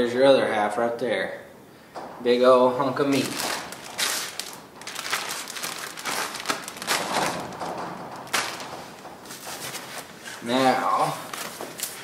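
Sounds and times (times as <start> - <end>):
plastic bag crinkling: 3.0 - 12.0
sharp crackles and clicks: 3.1 - 9.6.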